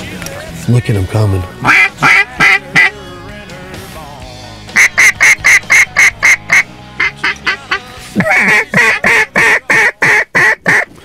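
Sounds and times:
duck call quacks: 1.6s - 3.0s, 4.8s - 10.9s.

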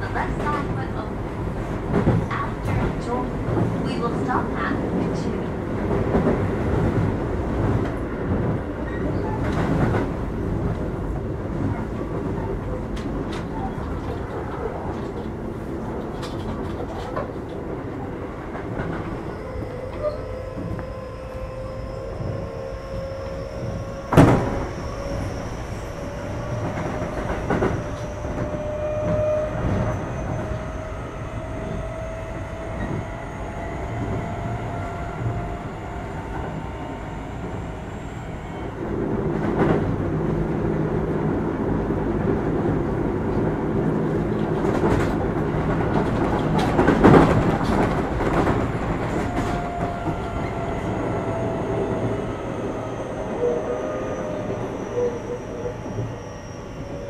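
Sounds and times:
rail joint clacks: 0.0s - 57.0s
train wheels rumbling on rails: 0.0s - 57.0s
traction motor whine: 19.0s - 38.9s.

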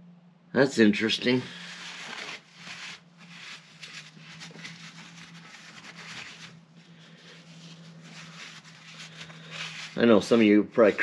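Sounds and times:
steady low hum: 0.0s - 11.0s
cloth rag wiping metal: 1.5s - 6.6s, 7.4s - 11.0s.

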